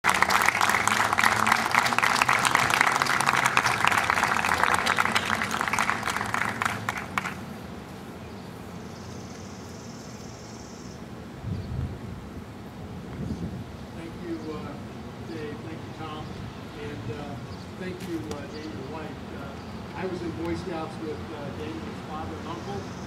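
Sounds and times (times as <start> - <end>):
crowd applauding: 0.0 - 7.5.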